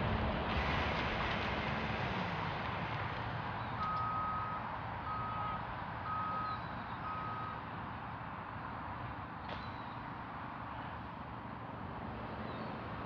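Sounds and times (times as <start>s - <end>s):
outdoor rushing noise: 0.0s - 3.6s
reversing alarm beeping: 3.8s - 7.6s.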